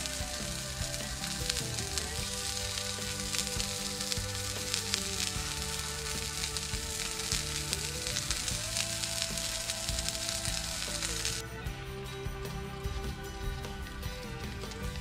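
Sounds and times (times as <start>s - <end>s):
patty sizzling in a frying pan: 0.0s - 11.4s
slow background music: 0.0s - 15.0s.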